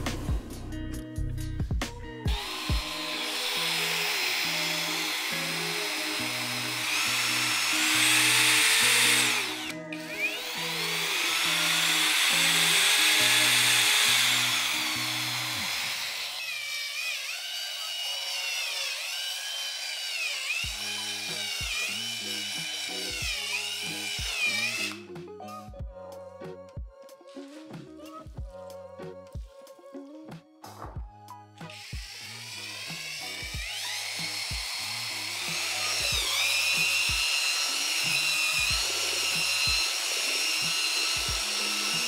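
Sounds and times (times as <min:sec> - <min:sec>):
background music: 0:00.0 - 0:16.3, 0:20.6 - 0:42.0
paddle mixer motor whining: 0:02.3 - 0:25.1, 0:31.7 - 0:42.0.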